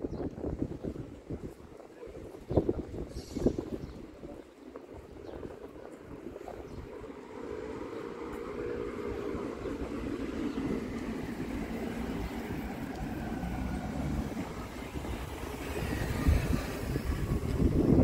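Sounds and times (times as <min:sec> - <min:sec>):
motor vehicle passing by: 0:07.4 - 0:18.0.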